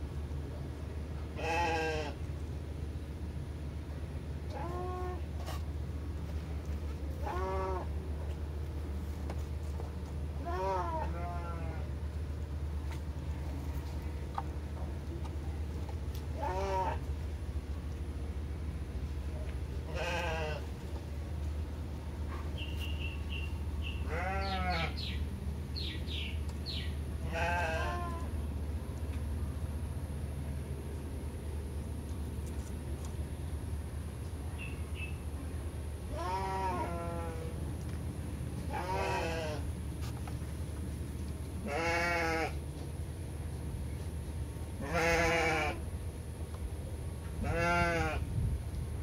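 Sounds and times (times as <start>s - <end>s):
animal bleating: 1.4s - 2.2s, 7.2s - 7.9s, 10.4s - 11.9s, 16.4s - 17.0s, 19.9s - 20.7s, 24.0s - 25.0s, 27.2s - 28.3s, 36.1s - 37.6s, 38.7s - 39.6s, 41.6s - 42.6s, 44.8s - 45.8s, 47.4s - 48.2s
drawn-out animal calls: 24.0s - 25.1s.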